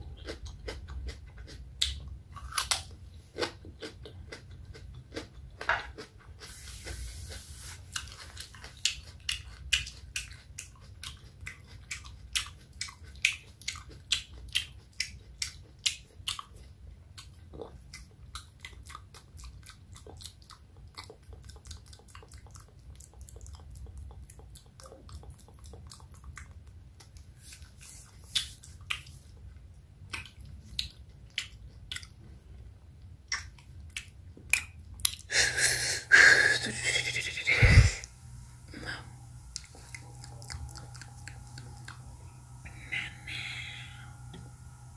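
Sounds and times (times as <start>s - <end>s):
wet lip and tongue clicks: 0.2s - 3.6s, 7.9s - 32.2s, 33.2s - 35.3s, 39.5s - 42.1s.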